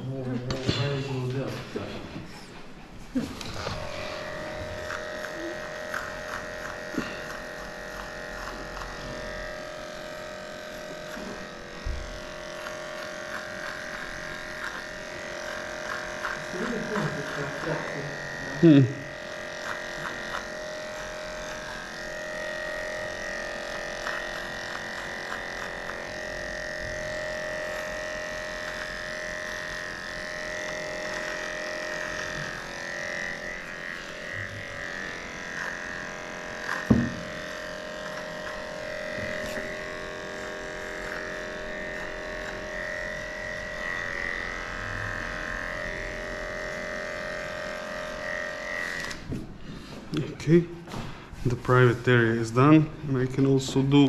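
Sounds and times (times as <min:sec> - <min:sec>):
electric dog clipper humming: 0:00.0 - 0:54.0.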